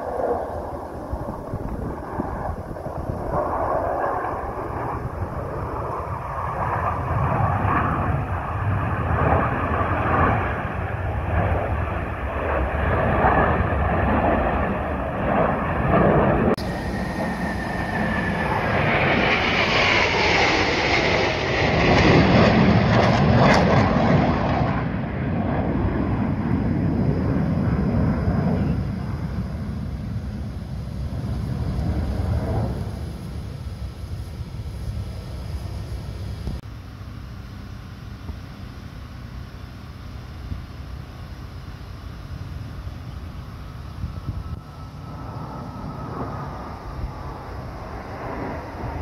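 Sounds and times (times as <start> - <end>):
jet roar: 0.0 - 49.0
jet whine falling in pitch: 0.0 - 49.0.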